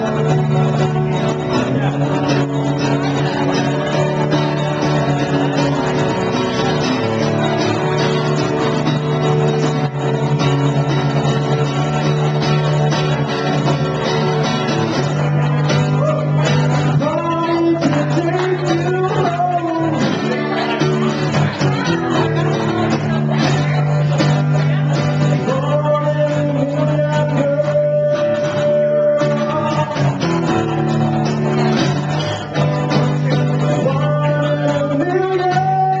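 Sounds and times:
man singing: 0.0s - 8.4s, 15.7s - 36.0s
acoustic guitar strumming: 0.0s - 36.0s.

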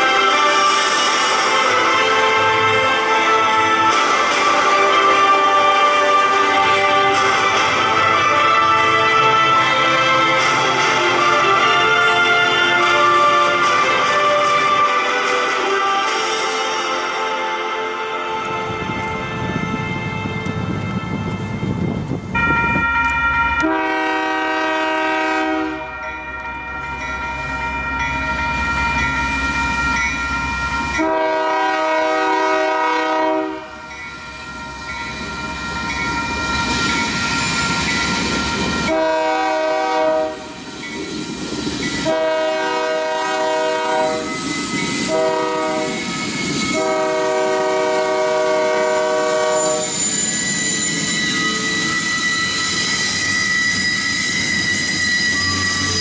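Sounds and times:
crossing signal bell ringing: 0.0s - 56.0s
locomotive air horn blasts: 23.6s - 26.0s, 31.0s - 33.7s, 38.9s - 40.5s, 42.0s - 44.3s, 45.1s - 46.0s, 46.7s - 50.0s.

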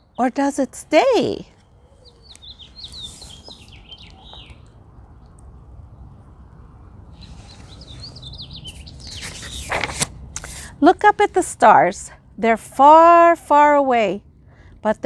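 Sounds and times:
low outdoor rumble: 0.0s - 15.0s
small bird chirping: 1.5s - 5.4s, 7.2s - 9.6s.

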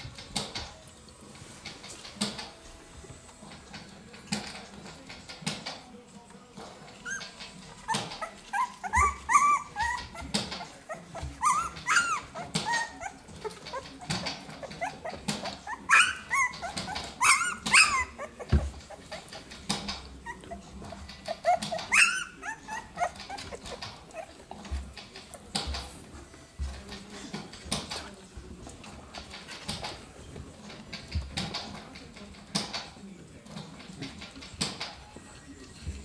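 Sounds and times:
puppies whimpering and squeaking: 6.7s - 28.2s.

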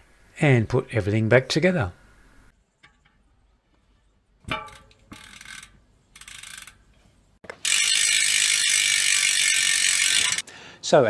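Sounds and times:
bike parts clacking: 2.6s - 10.4s
freehub pawls ratcheting buzz: 4.8s - 10.4s
short rasps of freehub parts: 5.1s - 10.4s.

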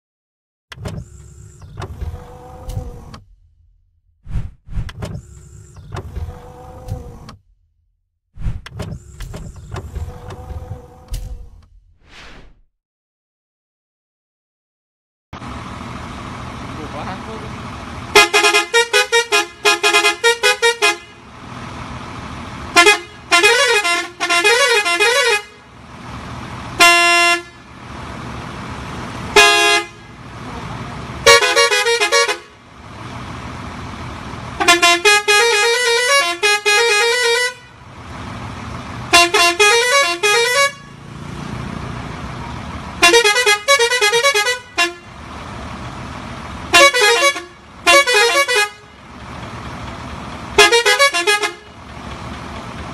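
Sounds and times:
musical bus horn: 18.0s - 21.5s, 22.6s - 27.8s, 28.9s - 32.8s, 34.4s - 37.9s, 39.0s - 41.2s, 42.9s - 45.3s, 46.7s - 49.2s, 50.5s - 51.9s.

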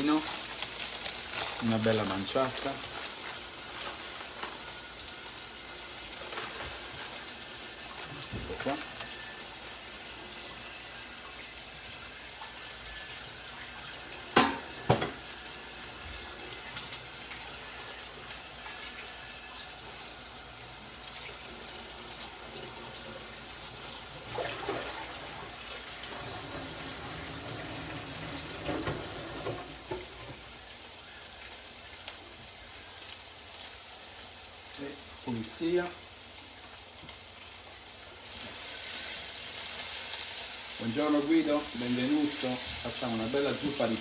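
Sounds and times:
onions sizzling in a pan: 0.0s - 44.0s.

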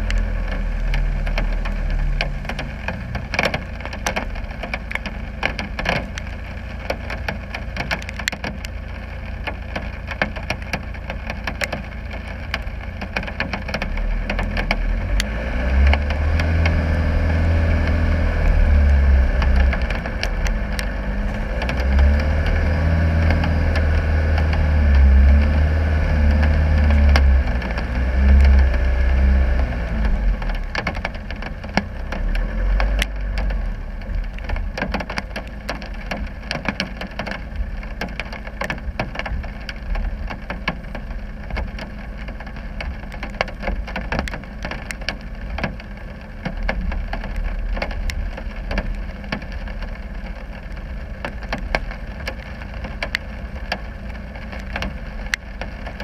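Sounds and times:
sharp ticks and clicks: 0.0s - 8.8s, 9.4s - 25.6s, 26.2s - 56.0s
diesel engine droning: 0.0s - 56.0s.

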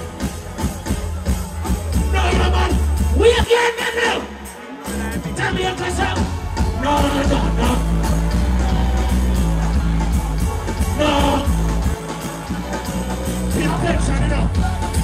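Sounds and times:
reggae band with heavy bass: 0.0s - 15.0s
man singing: 4.9s - 15.0s.

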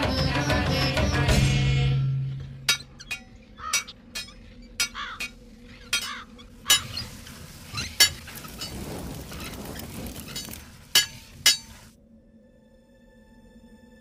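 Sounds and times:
forge fire crackling and hissing: 6.4s - 12.0s.

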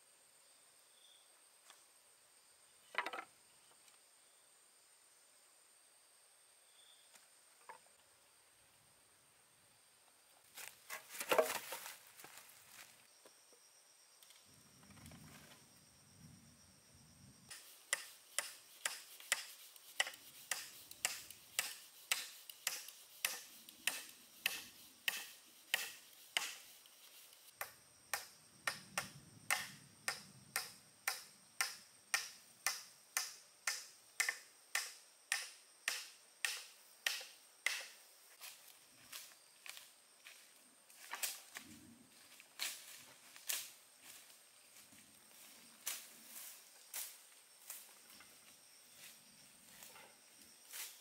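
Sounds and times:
hand tool chopping wood: 10.9s - 11.9s, 17.5s - 27.0s, 27.6s - 38.0s.

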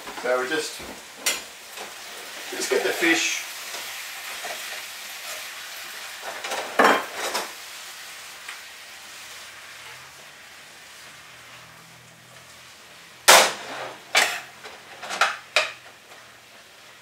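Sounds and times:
fish sizzling in a frying pan: 0.0s - 17.0s.

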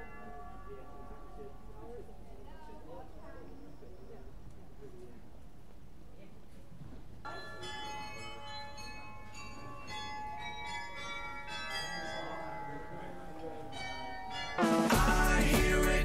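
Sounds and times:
bells ringing: 0.0s - 4.4s, 7.3s - 16.0s
loud music with a beat: 14.6s - 16.0s.

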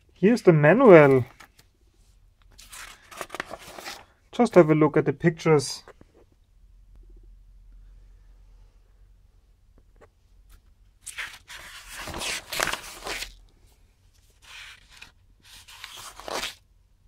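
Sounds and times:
paper pages rustling: 0.8s - 1.7s, 2.5s - 4.1s, 10.0s - 13.4s, 14.2s - 16.6s.

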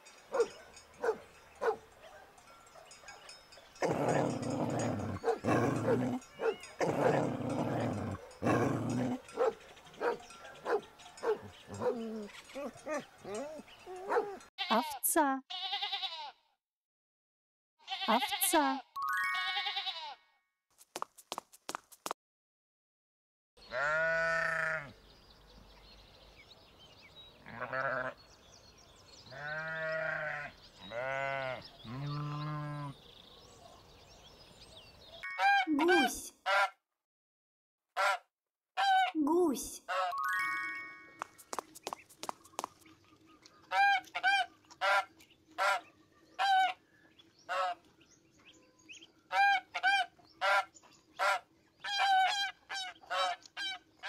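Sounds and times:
dog growling: 3.8s - 10.2s
sheep bleating: 14.6s - 16.4s, 17.8s - 18.6s, 19.3s - 20.2s, 23.6s - 25.0s, 27.4s - 28.2s, 29.3s - 33.0s.

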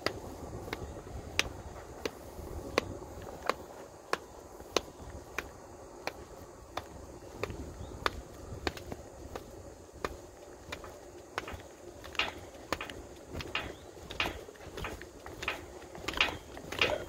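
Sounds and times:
sharp clicks: 10.0s - 17.0s.

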